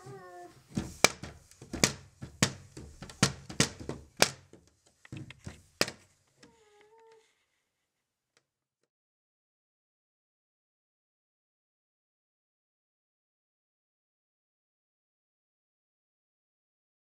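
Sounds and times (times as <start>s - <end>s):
hands banging on window: 0.0s - 4.6s.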